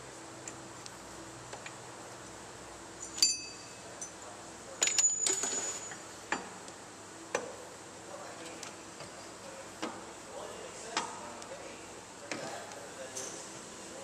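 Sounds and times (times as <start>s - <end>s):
metal parts clinking: 4.8s - 6.0s.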